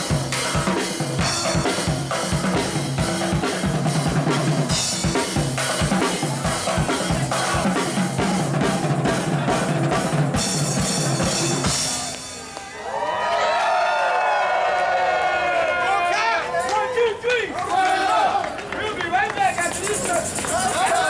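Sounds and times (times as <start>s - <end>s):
drum kit playing a fast beat: 0.0s - 12.5s, 19.6s - 21.0s
voices: 5.6s - 10.4s, 15.7s - 21.0s.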